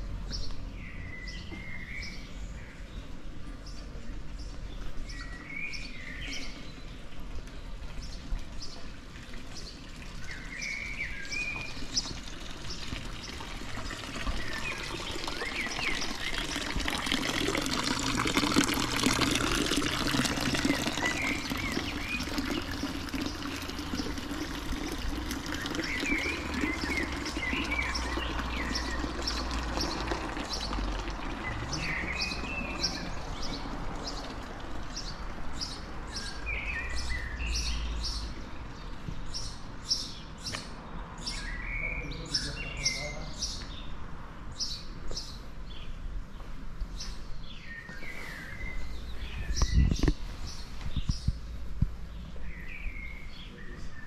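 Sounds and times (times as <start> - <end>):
small birds chirping: 0.0 - 54.0
fountain water splashing: 8.5 - 35.6.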